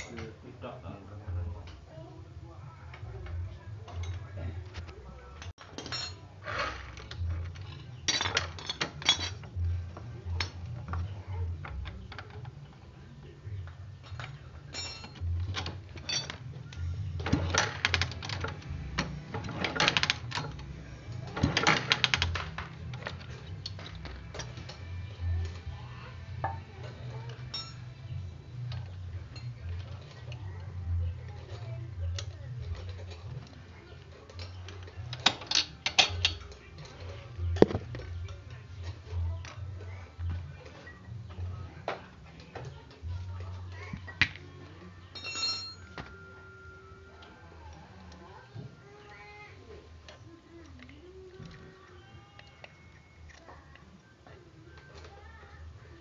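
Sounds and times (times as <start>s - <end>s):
hand tools clinking on metal: 5.4s - 9.6s, 14.0s - 16.5s, 27.3s - 30.4s, 34.2s - 37.7s, 45.1s - 46.2s.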